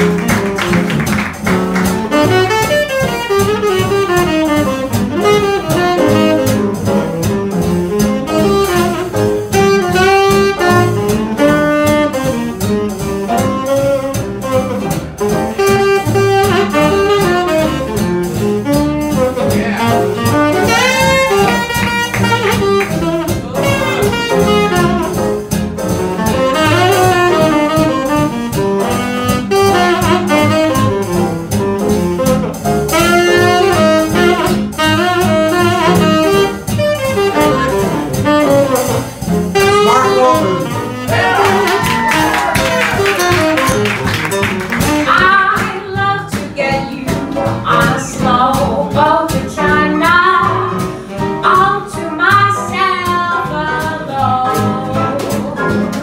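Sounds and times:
saxophone solo: 0.0s - 25.4s, 26.2s - 45.5s
bass line: 0.0s - 56.0s
big jazz band playing: 0.0s - 56.0s.

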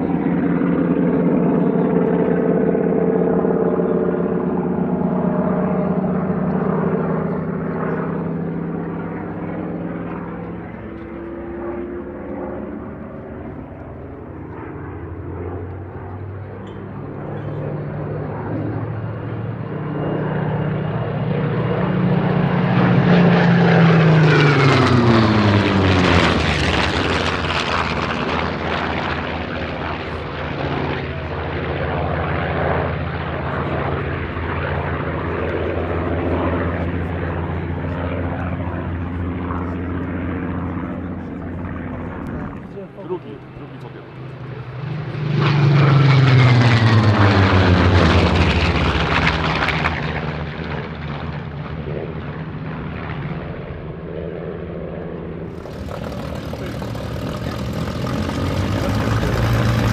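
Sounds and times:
fighter plane engines droning: 0.0s - 59.9s
fighter plane passing close: 0.0s - 59.9s.

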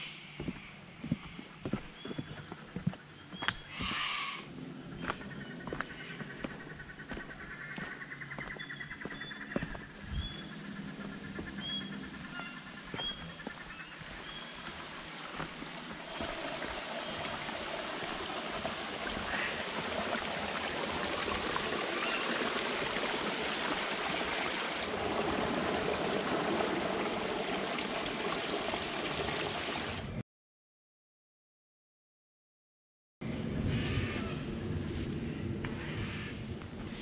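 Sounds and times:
bird chirps: 8.1s - 14.6s
creek water trickling over rocks: 12.8s - 30.1s.

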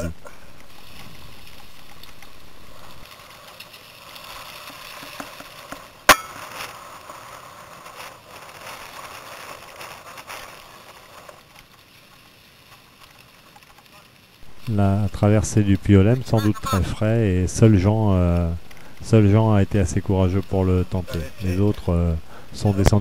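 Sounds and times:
bike tyres crunching on gravel: 0.0s - 23.0s
small clicks and rattles: 0.1s - 16.2s.

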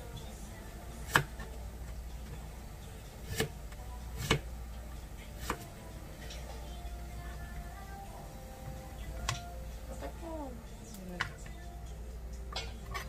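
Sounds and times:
knife chopping on plastic board: 1.0s - 1.5s, 3.2s - 3.6s, 4.2s - 4.5s.

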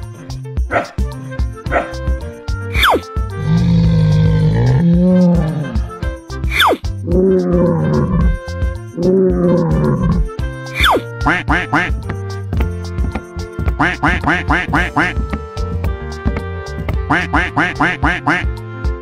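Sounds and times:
cartoon music: 0.7s - 19.0s
falling slide whistle: 2.7s - 3.1s, 6.5s - 6.8s, 10.8s - 11.0s
animal roars: 3.4s - 6.1s, 7.1s - 10.4s
duck quacks: 10.8s - 12.0s, 13.8s - 15.2s, 17.0s - 18.5s.

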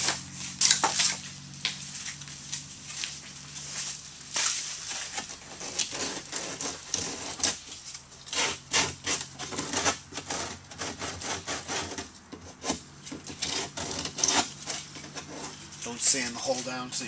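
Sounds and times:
sandpaper scratching plastic: 4.4s - 16.8s.

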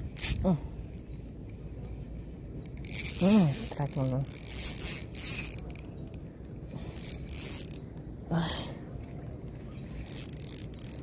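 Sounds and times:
fishing reel whirring: 0.2s - 0.4s, 2.6s - 6.2s, 6.9s - 7.8s, 10.0s - 11.0s.

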